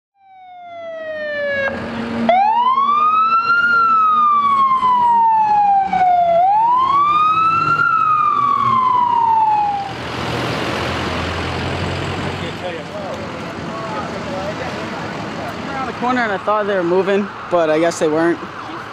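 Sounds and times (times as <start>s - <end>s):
emergency vehicle siren wailing: 0.2s - 12.0s
street noise: 0.2s - 18.9s.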